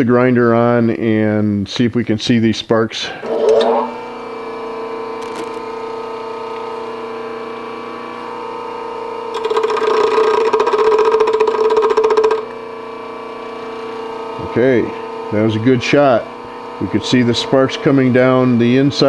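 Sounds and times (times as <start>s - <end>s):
bench grinder humming: 3.0s - 19.0s
steel gouge grinding on wheel: 3.2s - 4.0s, 9.3s - 12.5s.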